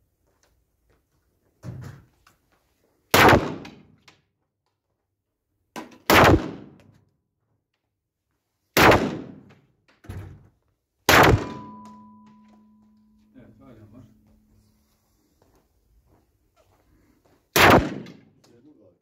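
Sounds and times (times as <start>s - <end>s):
pistol shots ringing: 6.1s - 6.8s, 11.1s - 12.6s, 17.6s - 18.3s
fainter gunshot bangs: 8.8s - 9.5s, 11.1s - 11.7s, 17.6s - 18.2s.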